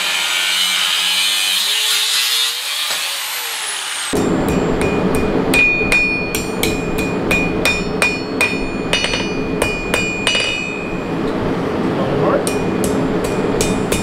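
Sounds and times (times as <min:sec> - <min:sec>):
hammer striking on anvil: 0:04.2 - 0:11.1, 0:12.4 - 0:14.0
anvil ringing: 0:04.2 - 0:11.2, 0:12.4 - 0:14.0.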